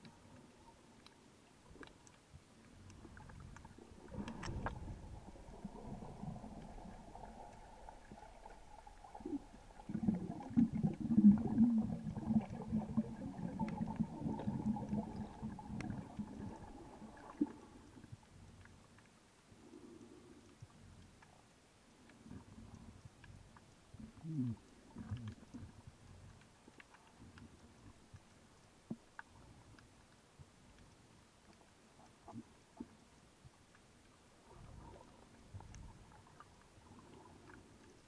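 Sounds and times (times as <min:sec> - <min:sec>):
underwater gurgling and rumbling: 0:00.0 - 0:38.0.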